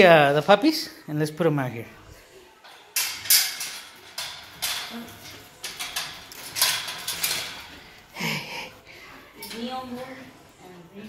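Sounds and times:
wire kennel panels rattling: 2.6 - 8.1.

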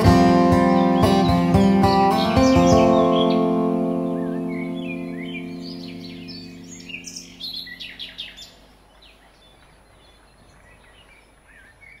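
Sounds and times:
held music chord: 0.0 - 8.4.

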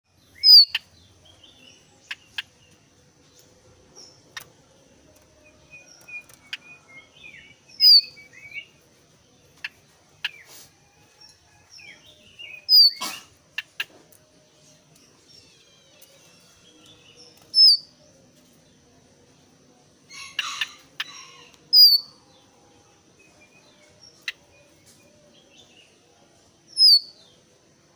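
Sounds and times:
bird twittering: 0.3 - 1.0, 5.8 - 8.7, 12.4 - 13.9, 17.5 - 17.9, 20.2 - 22.1, 26.7 - 27.1.

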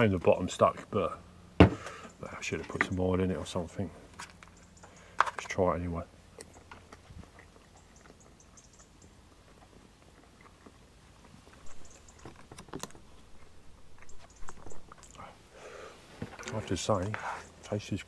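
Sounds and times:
chewing: 6.3 - 17.2.

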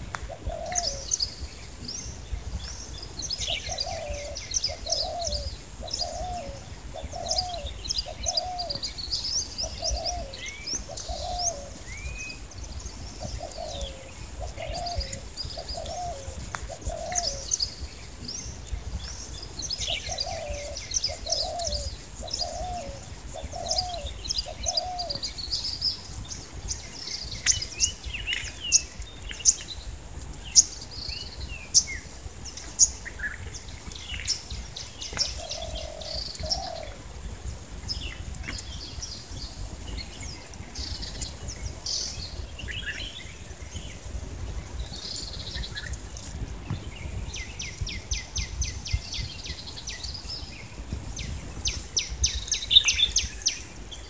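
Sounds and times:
birds chirping and calling: 0.1 - 54.0.

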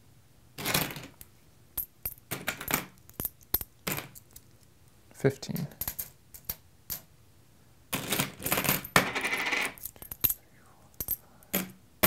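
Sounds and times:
coins clinking: 5.5 - 7.1, 8.0 - 11.8.

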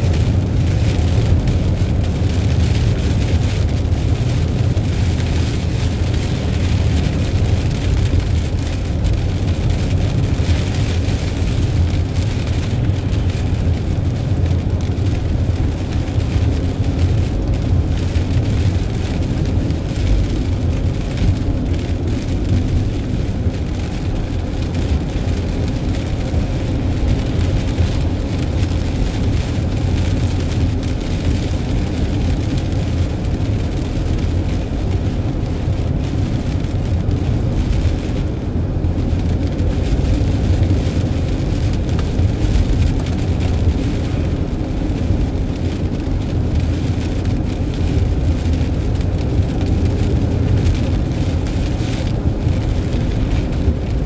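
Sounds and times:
rain and tyre spray hiss: 0.0 - 54.0
vehicle road rumble: 0.0 - 54.0.

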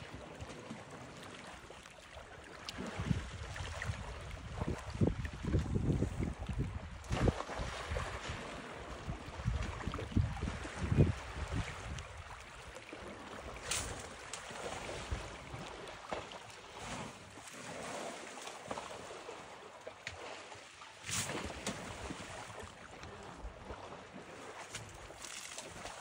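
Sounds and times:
elephant splashing in water: 7.0 - 26.0.

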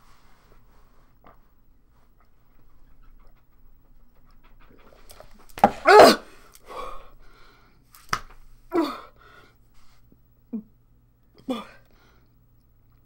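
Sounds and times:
woman gasping and groaning: 8.7 - 9.2.

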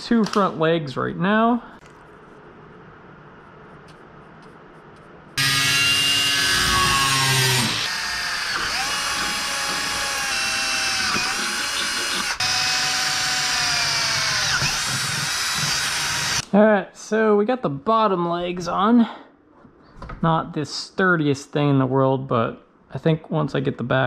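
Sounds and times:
power drill drilling into metal: 5.4 - 16.4.

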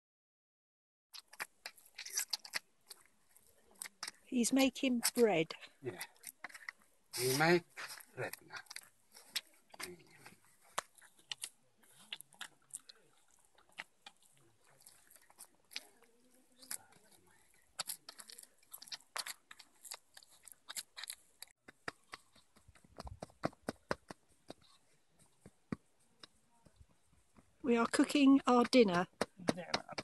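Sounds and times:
dough squelching: 1.2 - 30.0
hands patting dough on metal tray: 28.1 - 30.0.

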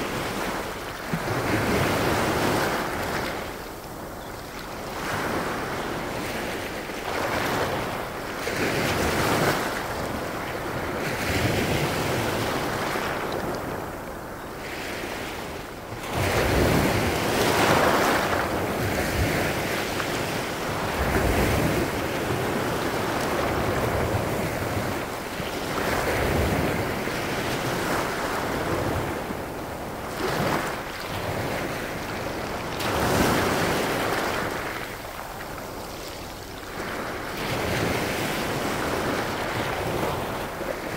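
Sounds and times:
waves washing over pebbles: 14.7 - 40.9.

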